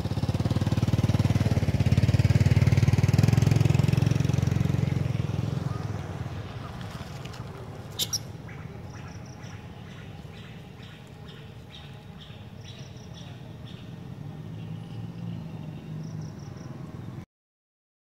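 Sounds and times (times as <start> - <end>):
animal chirping calls: 7.4 - 13.8.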